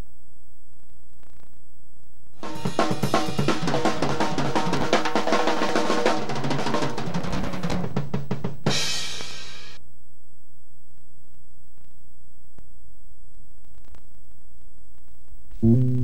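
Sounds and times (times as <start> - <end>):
drum-heavy music: 2.4 - 9.8.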